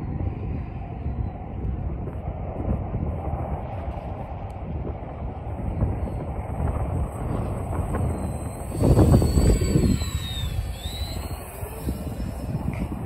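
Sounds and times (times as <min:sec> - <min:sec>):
wind rumbling on microphone: 0:00.0 - 0:13.0
model airplane motors whining: 0:06.6 - 0:13.0.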